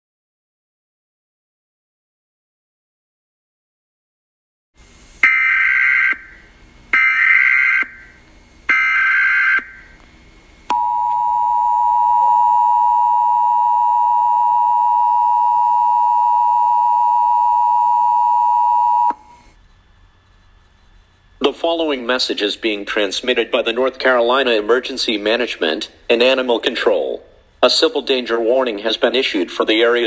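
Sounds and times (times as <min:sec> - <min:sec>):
two-tone attention signal: 0:10.7 - 0:19.3.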